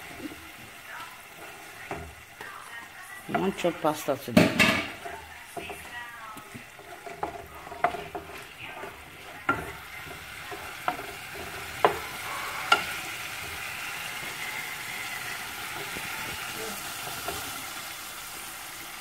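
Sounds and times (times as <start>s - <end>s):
sauce sizzling: 0.0s - 19.0s
wooden spoon knocking a pot: 3.2s - 14.7s.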